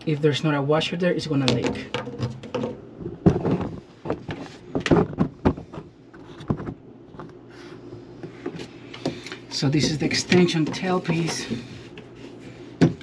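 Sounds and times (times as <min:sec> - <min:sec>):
plastic pipe parts clattering: 0:01.4 - 0:06.8.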